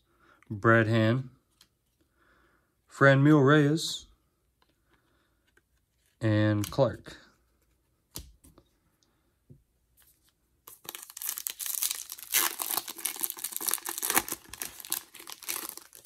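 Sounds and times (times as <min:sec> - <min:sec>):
foil wrapper tearing and crinkling: 0:10.7 - 0:16.0.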